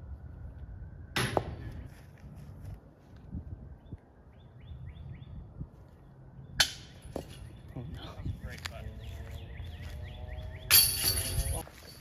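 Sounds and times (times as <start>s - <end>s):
chains jingling: 10.7s - 12.0s
disc hitting chain basket: 10.7s - 12.0s.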